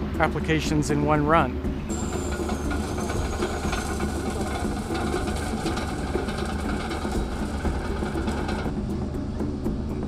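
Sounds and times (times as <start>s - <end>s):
diesel engine drone: 0.0s - 10.0s
heavy machinery clattering: 1.9s - 8.7s.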